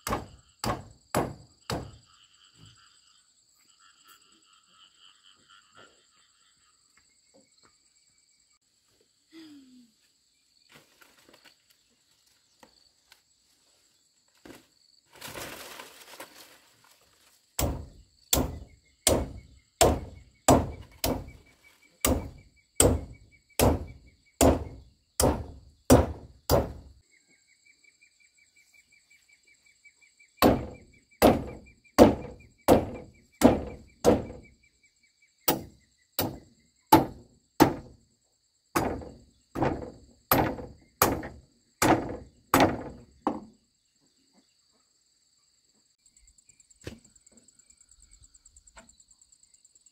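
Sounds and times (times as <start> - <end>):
machete chopping wooden poles: 0.0 - 2.0, 17.6 - 26.9, 30.4 - 34.5, 35.5 - 38.0, 38.8 - 43.5
insects buzzing and chirping: 0.0 - 49.9.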